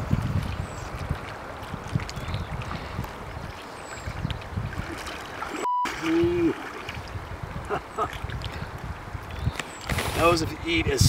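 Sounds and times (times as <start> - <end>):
wind gusts on microphone: 0.0 - 5.2, 6.0 - 11.0
river current flowing: 0.5 - 10.6
brief beep: 5.6 - 6.1.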